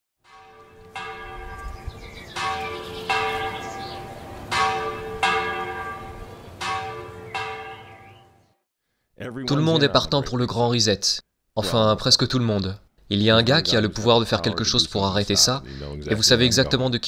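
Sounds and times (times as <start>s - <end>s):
bells ringing: 0.3s - 8.4s.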